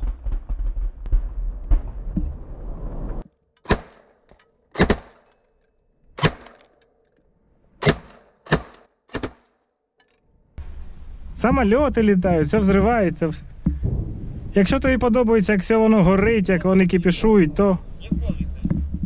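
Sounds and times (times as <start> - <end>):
wind rumble: 0.0 - 3.3, 10.6 - 19.0
machine gun shots with echo: 3.6 - 4.1, 4.8 - 5.2, 7.8 - 9.4.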